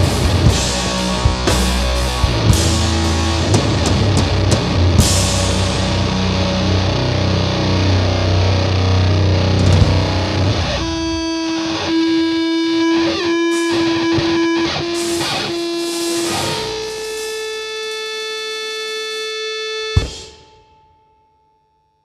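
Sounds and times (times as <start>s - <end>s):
bass and drums: 0.0s - 12.0s, 20.0s - 20.5s
electric guitar held notes: 0.0s - 20.7s.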